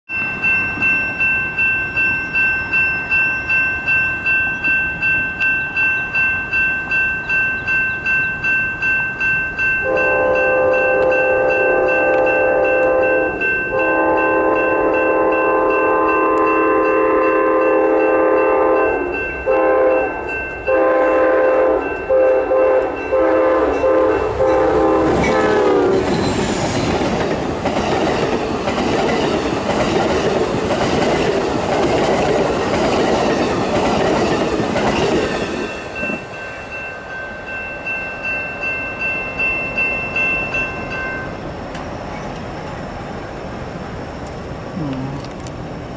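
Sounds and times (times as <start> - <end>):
crossing bell ringing: 0.1 - 44.5
locomotive air horn: 9.9 - 20.1, 20.7 - 26.0.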